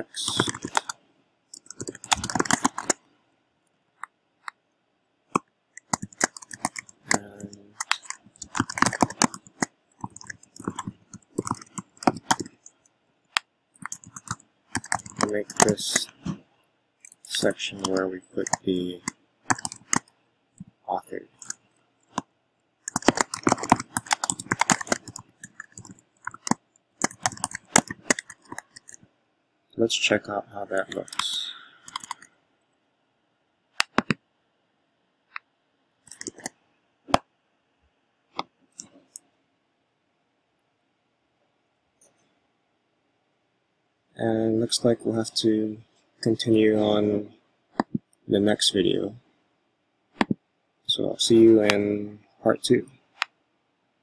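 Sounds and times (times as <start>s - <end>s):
computer keyboard typing: 0.0s - 1.0s, 1.6s - 3.0s, 5.8s - 16.3s, 17.0s - 20.7s, 21.3s - 29.0s, 30.8s - 32.3s, 33.8s - 34.2s, 36.1s - 36.5s.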